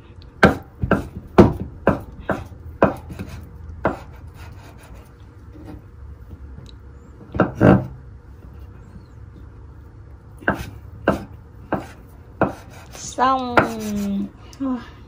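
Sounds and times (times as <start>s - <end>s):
knife chopping on wooden board: 0.4s - 4.8s, 7.3s - 8.0s, 10.4s - 14.0s.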